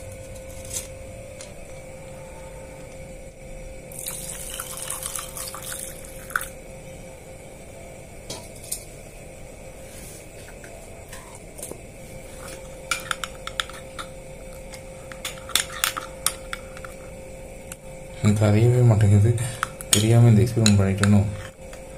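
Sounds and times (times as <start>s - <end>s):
faint steady hum: 0.0s - 21.9s
milk pouring into a mug: 3.9s - 6.6s.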